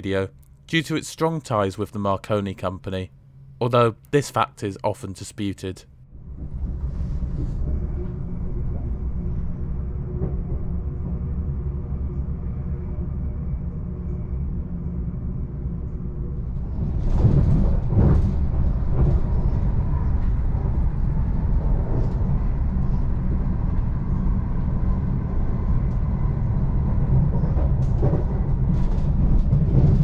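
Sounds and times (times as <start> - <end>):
train rumble inside carriage: 6.1 - 30.0.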